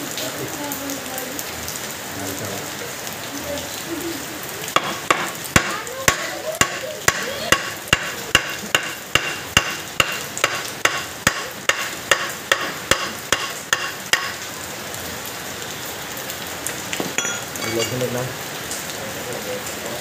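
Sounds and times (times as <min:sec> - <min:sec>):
hammer tapping on metal: 0:04.8 - 0:14.4.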